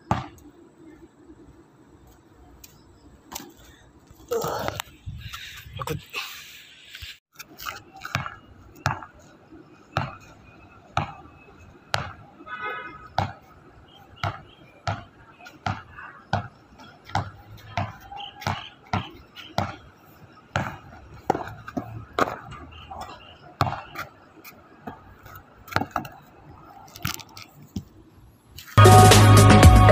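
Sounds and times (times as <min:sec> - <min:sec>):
basketball bouncing on pavement: 0:00.0 - 0:00.5, 0:07.7 - 0:26.3.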